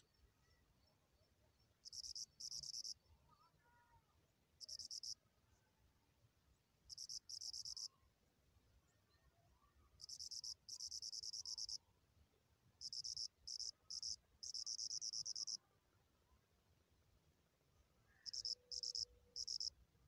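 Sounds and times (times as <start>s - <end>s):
cricket trilling: 1.8s - 3.0s, 4.6s - 5.2s, 6.9s - 7.9s, 10.0s - 11.8s, 12.8s - 15.6s, 18.2s - 19.7s.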